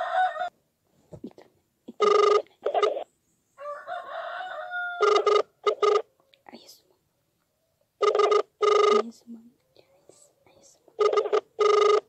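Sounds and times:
rooster crowing: 0.0 - 0.6, 3.6 - 5.6
phone ringback tone: 2.0 - 3.0, 5.0 - 6.1, 8.0 - 9.0, 11.0 - 12.0.

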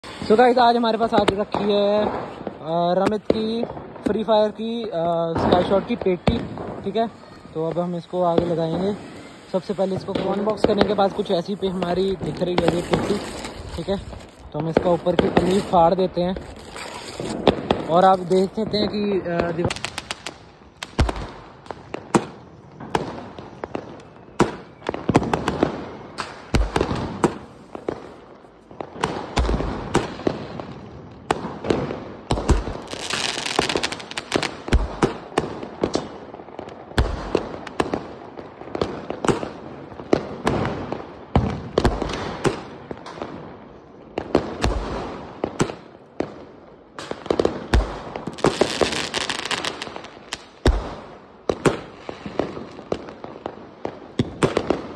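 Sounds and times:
hissing firework crackle: 0.0 - 43.4, 44.1 - 54.9
fireworks pops and bangs: 0.0 - 54.9
deep firework thumps: 5.3 - 6.9.

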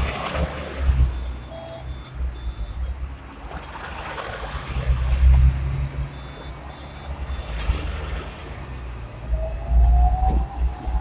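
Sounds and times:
street traffic: 0.0 - 11.0
tram rumble: 0.0 - 11.0
card reader beeps: 1.2 - 2.9.

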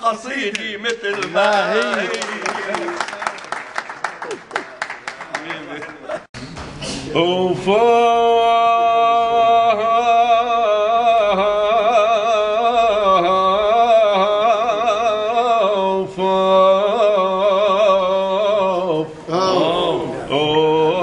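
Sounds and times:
man singing unaccompanied: 0.0 - 2.4, 7.1 - 21.0.

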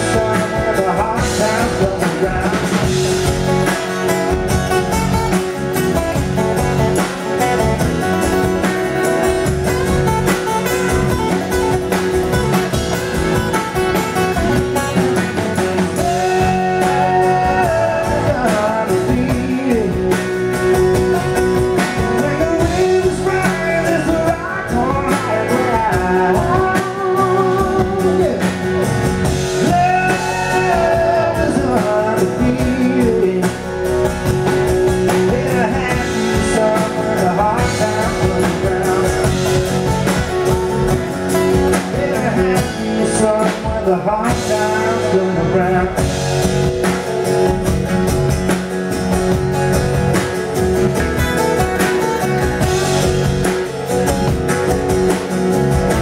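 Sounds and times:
man singing: 0.0 - 5.3, 14.8 - 46.7
acoustic guitars strumming: 0.0 - 56.0
drum kit: 0.0 - 56.0
electric bass: 0.0 - 56.0.

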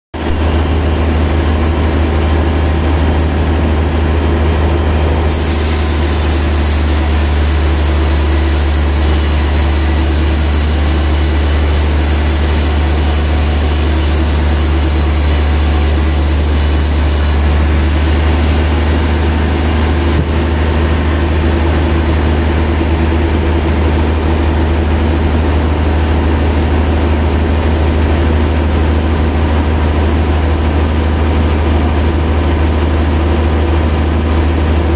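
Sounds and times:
sawmill humming: 5.0 - 21.2
saw blade hissing through log: 5.3 - 17.5.

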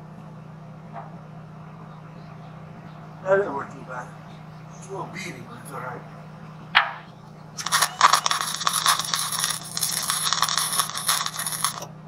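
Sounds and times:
welding arc crackling: 7.6 - 11.9.

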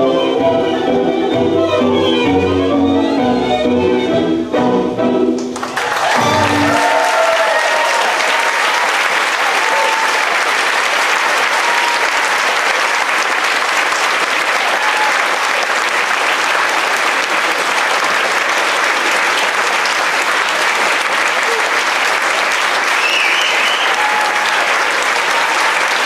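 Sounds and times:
audience applauding: 5.4 - 26.0
short calls from audience: 5.8 - 13.2, 20.7 - 26.0.

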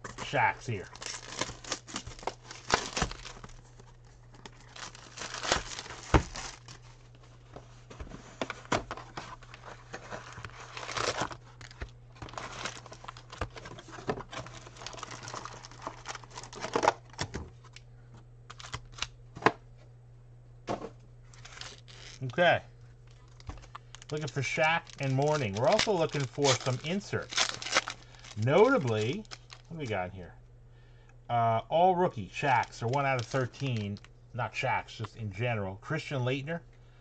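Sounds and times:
wrappers crinkling and tearing: 0.0 - 7.4, 9.0 - 17.8, 18.5 - 19.1, 21.3 - 22.4, 23.0 - 29.8, 32.5 - 34.1
low electrical hum: 0.0 - 37.0.

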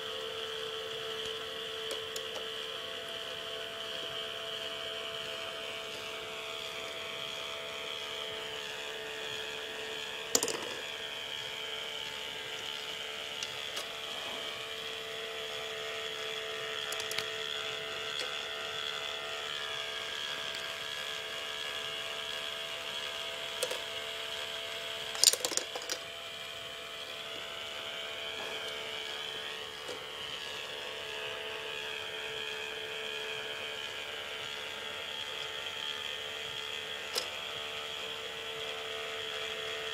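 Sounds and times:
small motor and gears whining: 0.0 - 39.9
sharp plastic clacks: 10.3 - 10.8, 16.9 - 17.3, 25.1 - 26.0.

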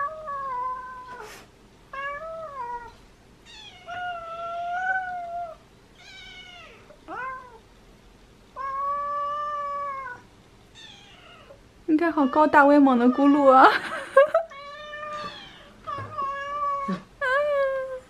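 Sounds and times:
cat meowing: 2.0 - 7.6, 8.6 - 11.6, 14.5 - 17.0.

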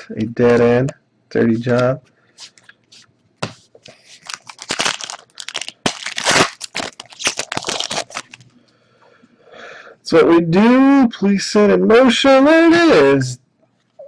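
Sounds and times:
foil wrapper crinkling and ripping: 3.9 - 8.5.

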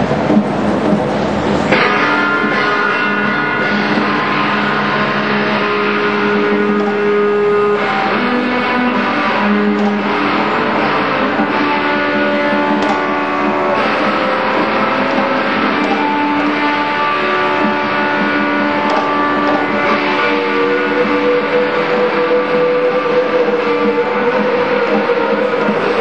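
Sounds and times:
live band with guitar: 0.0 - 26.0.

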